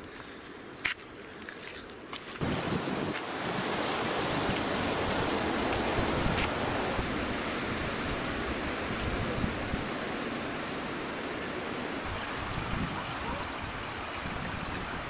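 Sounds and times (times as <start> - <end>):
wind buffeting microphone: 2.4 - 11.3, 12.0 - 15.0.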